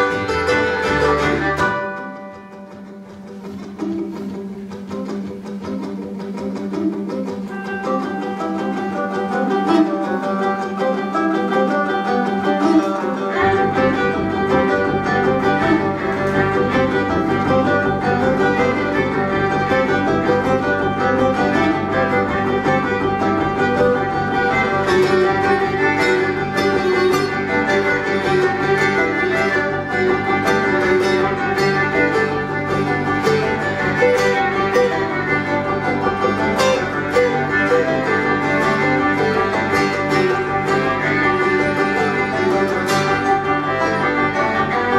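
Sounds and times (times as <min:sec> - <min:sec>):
upright bass: 0:00.0 - 0:02.1, 0:11.2 - 0:44.9
banjo: 0:00.0 - 0:44.9
fiddle: 0:00.0 - 0:44.9
strummed acoustic guitar: 0:00.0 - 0:44.9.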